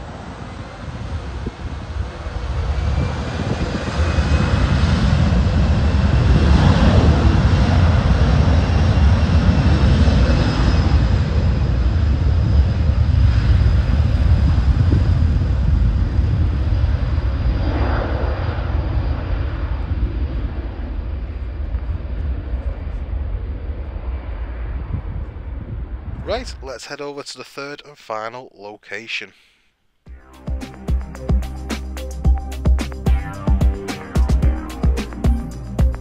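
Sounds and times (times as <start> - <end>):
jet engines taking off: 0.0 - 24.9.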